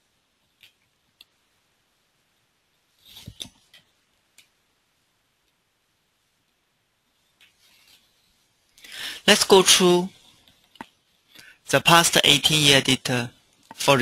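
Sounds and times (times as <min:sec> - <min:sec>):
computer mouse clicks: 0:00.5 - 0:01.4.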